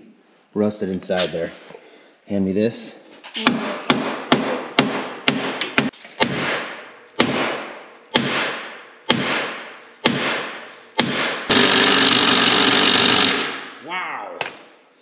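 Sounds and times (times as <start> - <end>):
cordless power tool running: 11.5 - 13.5.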